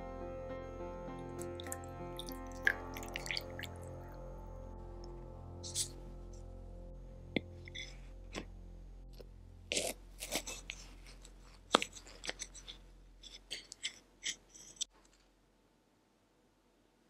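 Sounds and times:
knife cutting crisp pastry: 0:09.7 - 0:14.9.

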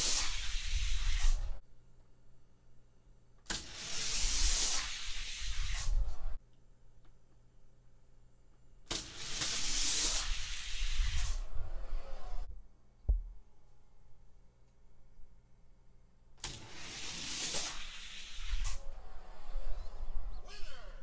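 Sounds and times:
toy cars rolling down track: 0:16.4 - 0:18.8.

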